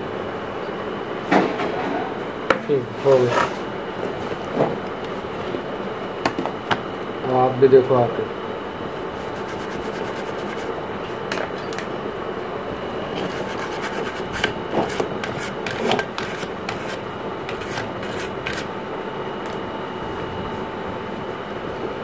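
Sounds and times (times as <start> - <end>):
brush scrubbing circuit board: 9.2 - 10.7, 13.2 - 18.7.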